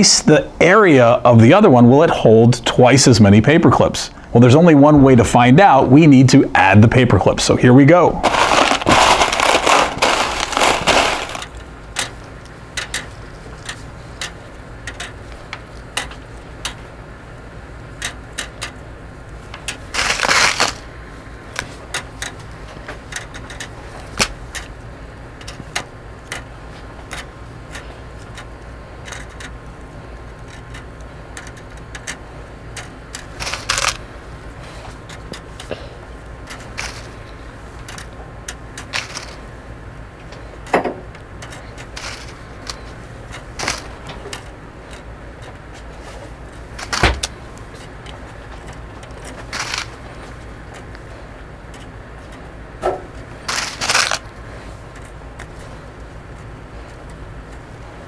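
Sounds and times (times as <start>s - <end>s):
paper clips rattling in plastic tub: 8.2s - 12.2s, 19.7s - 20.8s, 31.4s - 34.1s, 36.4s - 39.4s, 41.4s - 45.0s, 46.7s - 47.4s, 48.0s - 50.9s, 53.4s - 54.3s.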